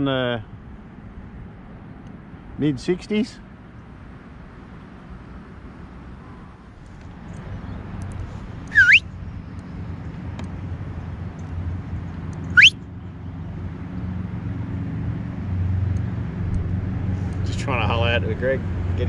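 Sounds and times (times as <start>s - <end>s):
person whistling: 8.7s - 9.0s, 12.5s - 12.8s.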